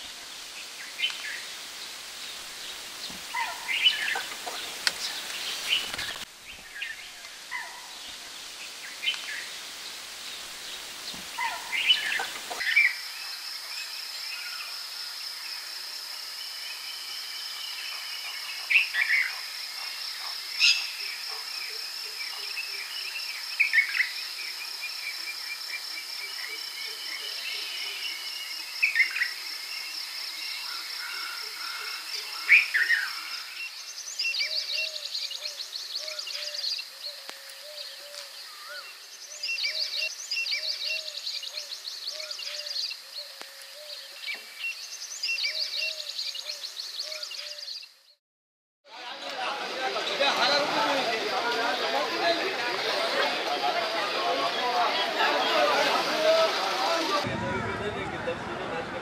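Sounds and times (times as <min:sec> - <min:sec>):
bird calls and chirps: 0:02.3 - 0:09.5, 0:10.3 - 0:14.7, 0:16.5 - 0:48.2.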